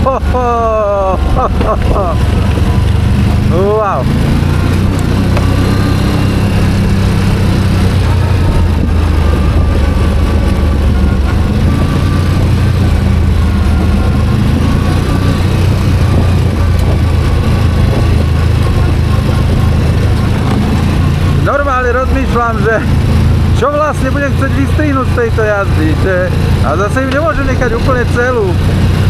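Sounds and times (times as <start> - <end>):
atv engine running: 0.0 - 29.0
ride noise: 0.0 - 29.0.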